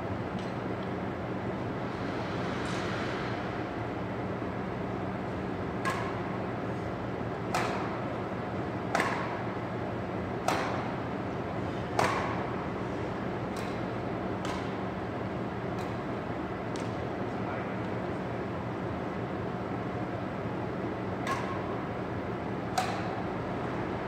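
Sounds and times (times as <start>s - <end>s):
steady hum: 0.0s - 24.0s
racket hitting shuttlecock: 5.8s - 6.3s, 7.5s - 8.0s, 8.9s - 9.4s, 10.4s - 10.9s, 11.9s - 12.5s, 13.5s - 13.8s, 14.4s - 14.8s, 15.8s - 16.0s, 21.2s - 21.6s, 22.7s - 23.2s.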